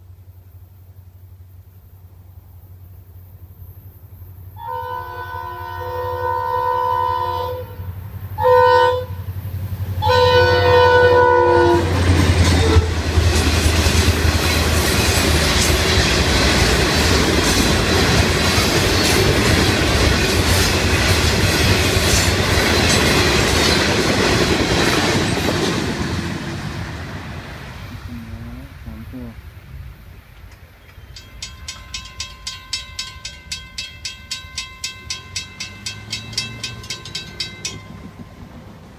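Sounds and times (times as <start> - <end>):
locomotive air horn blasts: 4.6 - 9.3, 10.0 - 12.0, 12.6 - 12.9
train wheels clickety-clack: 11.8 - 27.1, 30.5 - 38.9.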